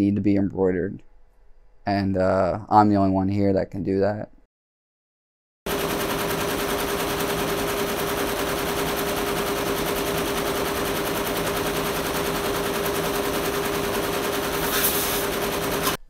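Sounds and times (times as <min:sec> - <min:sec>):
embroidery machine needle clatter: 0:05.7 - 0:16.0
machine hum: 0:05.7 - 0:16.0.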